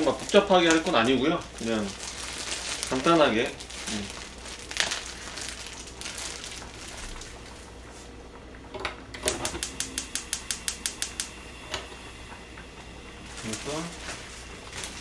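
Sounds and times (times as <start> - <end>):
gas hob igniter clicking: 8.5 - 12.9.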